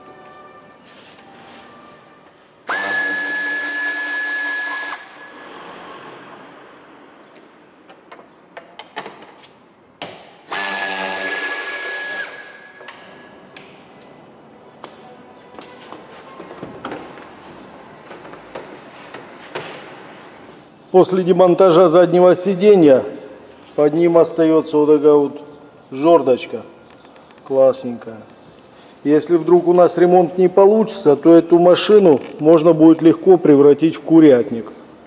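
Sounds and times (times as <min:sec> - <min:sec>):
pneumatic ratchet whine: 0:02.7 - 0:05.4, 0:10.5 - 0:13.0
tool and door clicks and knocks: 0:07.8 - 0:09.4, 0:10.0 - 0:10.4, 0:16.4 - 0:17.3.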